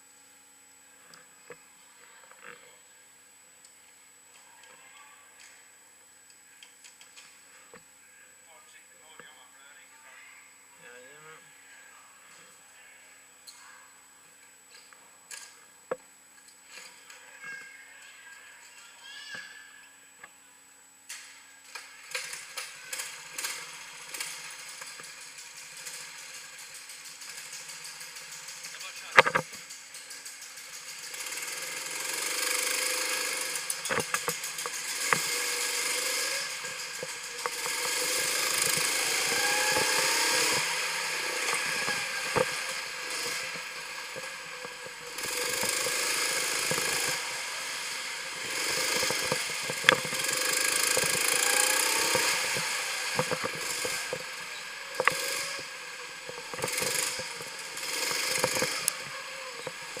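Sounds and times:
go-kart engine running: 21.8s - 60.0s
sharp knocks and rattles: 22.2s - 60.0s.

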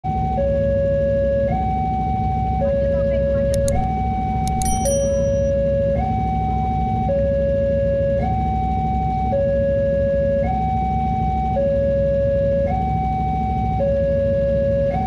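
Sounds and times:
low rumble of road traffic: 0.1s - 15.0s
level crossing two-tone alarm: 2.5s - 7.0s.

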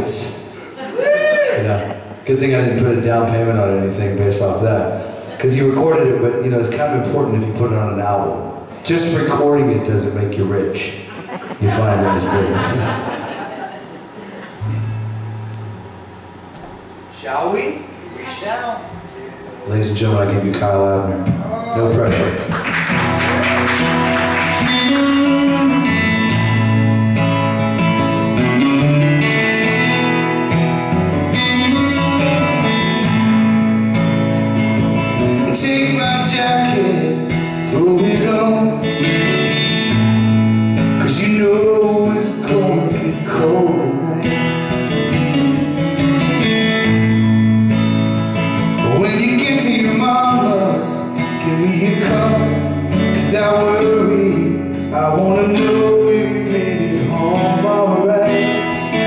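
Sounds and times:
electric guitar strumming: 0.0s - 59.0s
acoustic guitar strumming: 1.8s - 17.2s, 17.8s - 59.0s
man singing: 35.4s - 39.1s, 41.0s - 44.7s, 48.8s - 59.0s.

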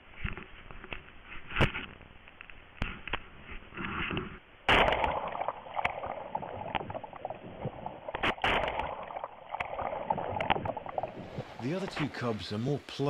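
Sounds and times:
water splashing and sloshing: 2.8s - 13.0s.

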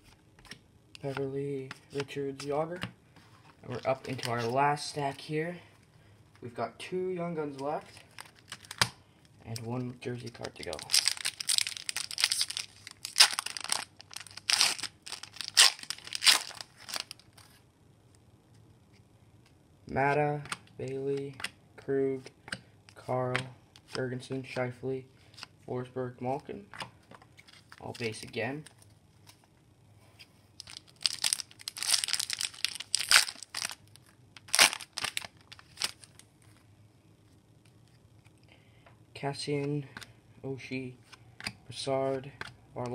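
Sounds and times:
foil wrapper tearing and crinkling: 10.7s - 17.3s, 30.6s - 36.2s.

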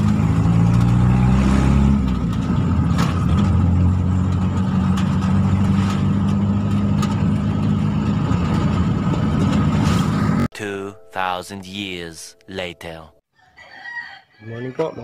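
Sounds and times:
vehicle engine running: 0.0s - 10.5s.

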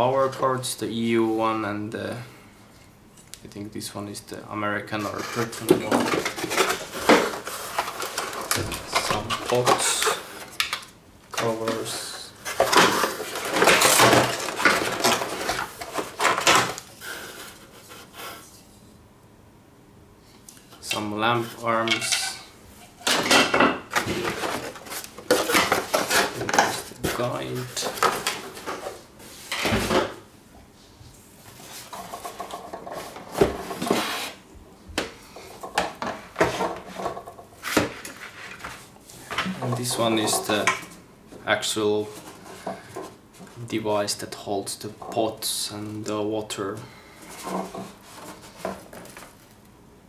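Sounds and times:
cardboard rustling and scraping: 4.9s - 10.6s, 11.4s - 18.6s, 23.9s - 30.2s, 31.4s - 34.4s, 35.6s - 40.7s, 42.0s - 43.6s, 47.2s - 49.5s
plastic parts clattering: 5.0s - 16.9s, 23.0s - 30.2s
cardboard rustle: 11.4s - 18.0s, 23.9s - 29.8s.

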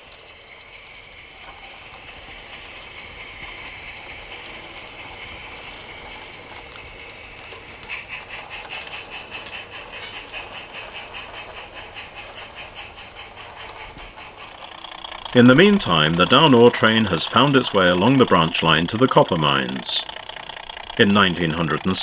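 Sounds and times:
steam hiss: 0.0s - 22.0s
steam locomotive chuffing: 0.0s - 22.0s.

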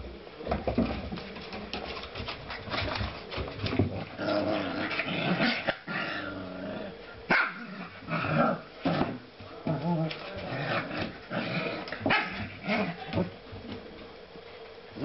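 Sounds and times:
puppies growling and whining: 3.7s - 13.3s.

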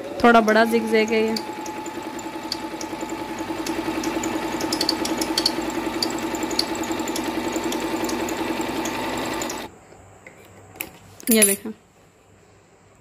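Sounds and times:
sewing machine running: 0.0s - 9.7s.

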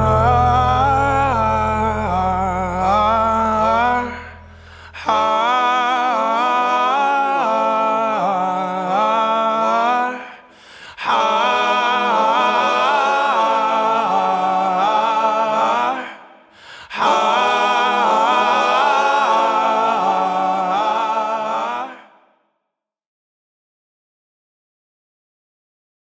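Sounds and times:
background music: 0.0s - 4.0s
hummed vocal melody: 0.0s - 22.1s.

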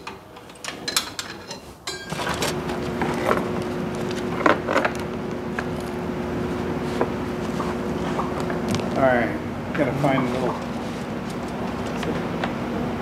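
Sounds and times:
steady mechanical hum: 0.0s - 13.0s
metal tools clicking and knocking: 0.4s - 2.3s.

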